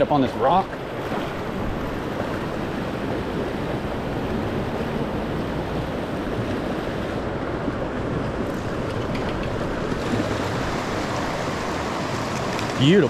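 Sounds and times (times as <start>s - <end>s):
river water rushing over rocks: 8.6s - 13.0s.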